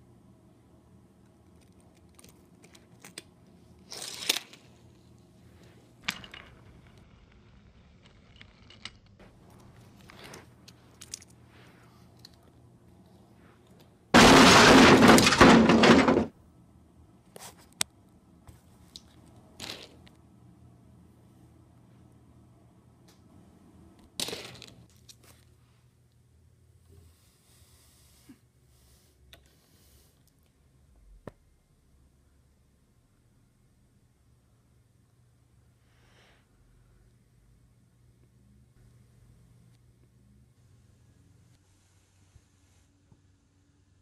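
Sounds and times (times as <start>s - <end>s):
toy train crashing: 6.0s - 7.0s, 14.2s - 16.4s.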